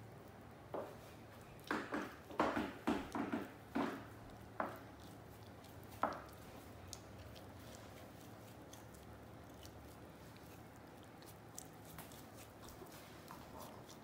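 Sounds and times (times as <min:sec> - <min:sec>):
dog licking and chewing paw: 0:03.1 - 0:14.0.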